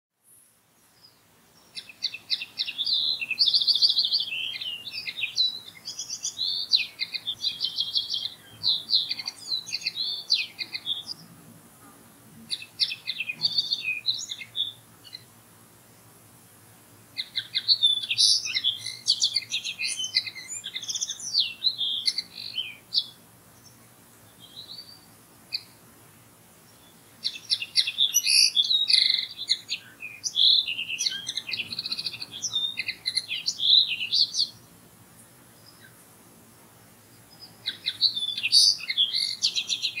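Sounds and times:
linnet twittering song: 0:00.3 - 0:11.4, 0:12.5 - 0:15.3, 0:17.2 - 0:25.8, 0:26.6 - 0:36.1, 0:36.7 - 0:40.0.

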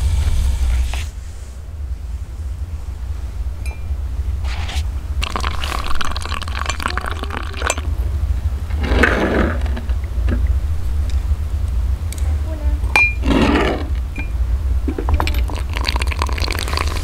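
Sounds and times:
water pouring into glass mug: 0:05.2 - 0:07.9, 0:15.2 - 0:17.0
spoon clinking against glass: 0:07.6 - 0:07.9.

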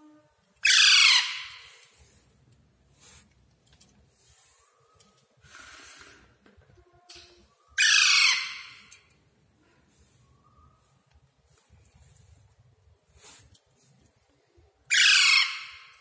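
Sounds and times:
parrot chick rasping screeches: 0:00.6 - 0:01.9, 0:07.8 - 0:08.9, 0:14.9 - 0:16.0.

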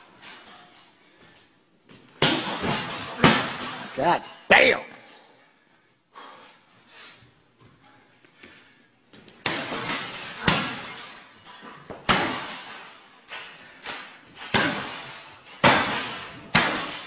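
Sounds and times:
strikes smacking heavy bag: 0:14.4 - 0:17.0.

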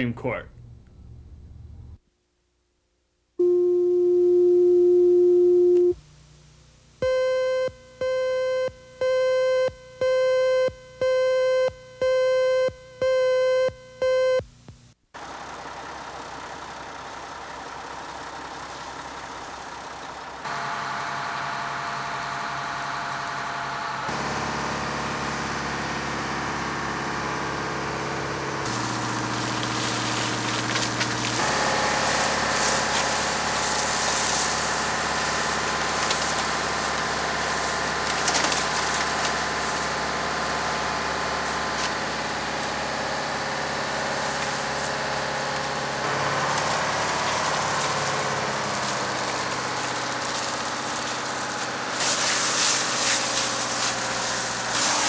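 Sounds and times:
fire engine engine and pump: 0:15.2 - 0:55.0
hiss of water spray: 0:48.7 - 0:55.0.

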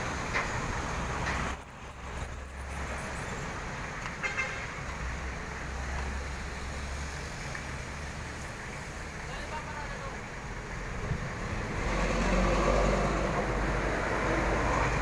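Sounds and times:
street traffic noise: 0:00.0 - 0:15.0
pickup truck driving past: 0:11.3 - 0:15.0.

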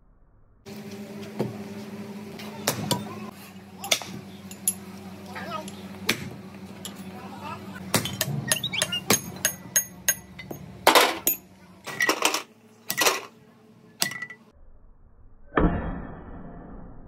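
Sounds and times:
hammer tapping metal: 0:07.9 - 0:11.5.

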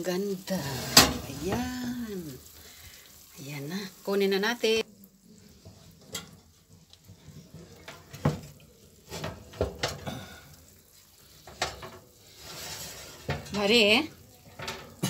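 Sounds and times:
faint hiss: 0:00.0 - 0:15.0
glass dish sliding on oven rack: 0:00.6 - 0:01.8, 0:11.6 - 0:13.8
clinks of dish and rack: 0:14.6 - 0:15.0.

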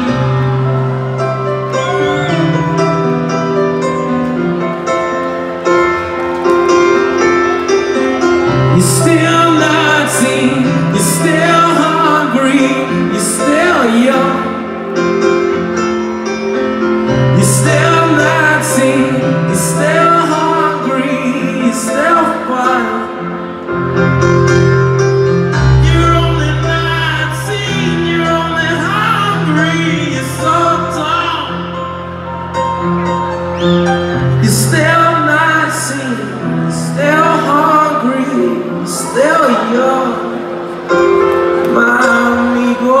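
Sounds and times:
keyboard: 0:00.0 - 0:43.0
lead vocal: 0:08.5 - 0:14.9, 0:17.1 - 0:23.6, 0:25.3 - 0:32.1, 0:33.6 - 0:43.0.

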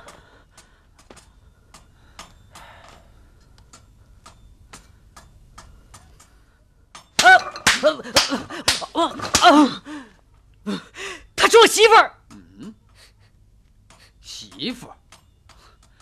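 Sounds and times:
person crying out: 0:07.2 - 0:10.0.

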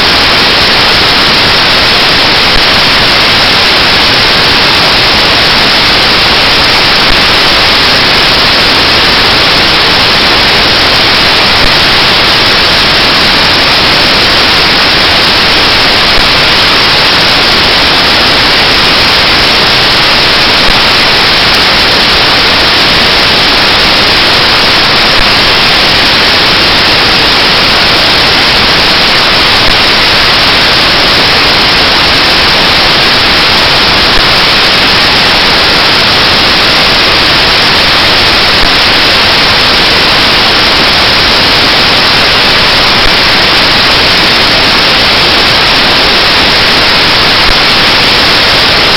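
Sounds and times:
loud static hiss: 0:00.0 - 0:48.9.

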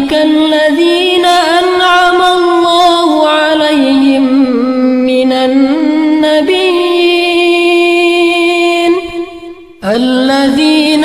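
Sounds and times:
man reciting melodically: 0:09.8 - 0:11.0.

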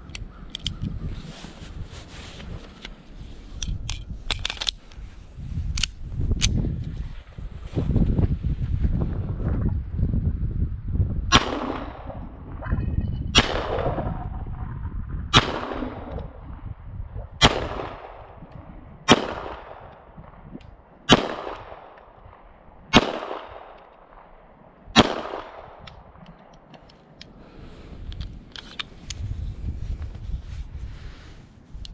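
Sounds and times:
pistol shots echoing: 0:21.1 - 0:22.0, 0:22.9 - 0:25.8.

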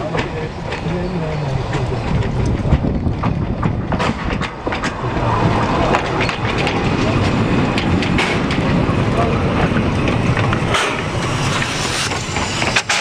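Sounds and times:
steam locomotive rolling past: 0:00.0 - 0:13.0
wheels clanking on rails: 0:00.0 - 0:13.0.

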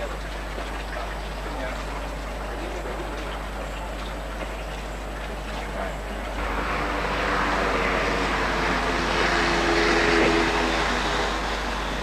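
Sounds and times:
passing engine hum and hiss: 0:05.0 - 0:12.0.

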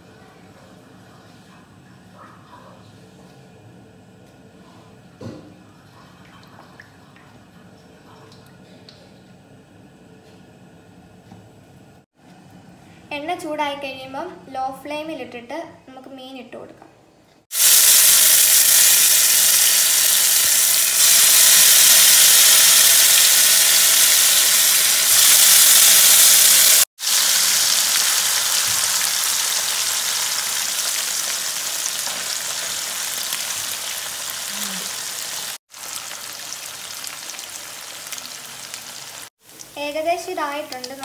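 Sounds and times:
fish sizzling in hot oil: 0:17.5 - 0:41.0.

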